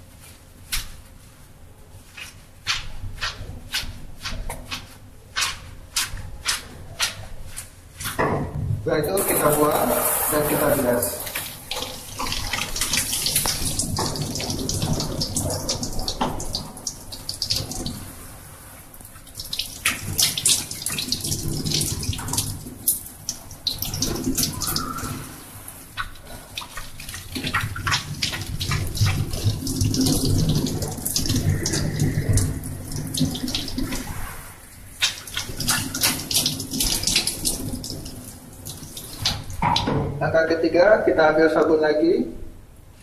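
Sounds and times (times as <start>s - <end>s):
tap water splashing into sink: 9.3s - 18.1s, 26.0s - 34.1s, 35.0s - 40.2s.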